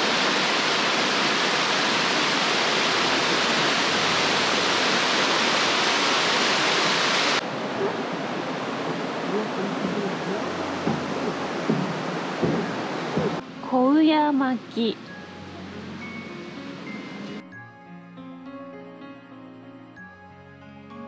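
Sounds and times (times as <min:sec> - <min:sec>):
river rushing over rocks: 0:00.0 - 0:13.5.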